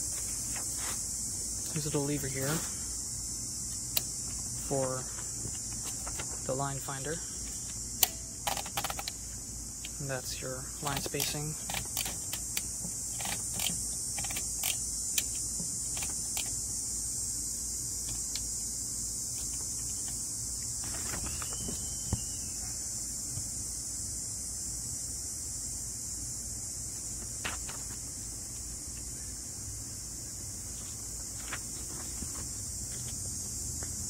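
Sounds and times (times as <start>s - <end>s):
insect chorus: 0.0s - 34.0s
typewriter ratchet clicks: 8.0s - 9.2s, 10.8s - 16.6s.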